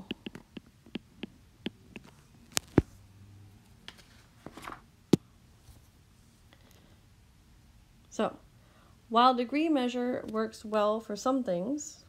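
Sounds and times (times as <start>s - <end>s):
stylus tapping on glass screen: 0.0s - 2.8s.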